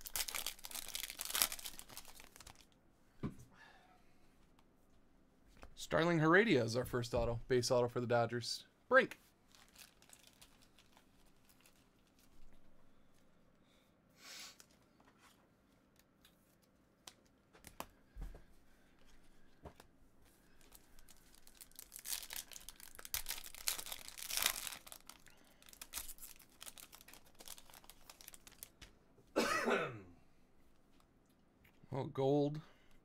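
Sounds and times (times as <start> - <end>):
foil wrappers tearing and crinkling: 0.0 - 2.7, 9.5 - 12.3, 20.6 - 28.7.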